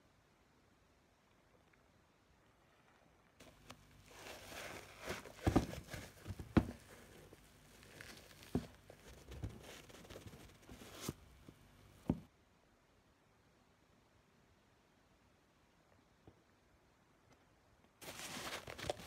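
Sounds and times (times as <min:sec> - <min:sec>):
sneaker handling rustling: 0:03.4 - 0:12.3, 0:18.0 - 0:19.0.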